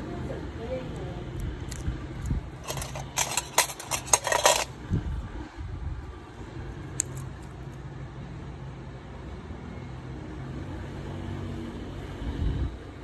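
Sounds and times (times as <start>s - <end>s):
metal instruments clinking on tray: 2.6s - 4.7s.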